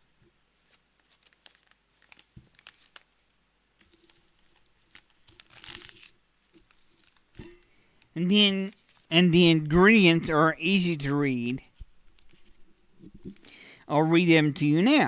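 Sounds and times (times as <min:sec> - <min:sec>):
bag crinkling in hands: 0:00.6 - 0:09.1.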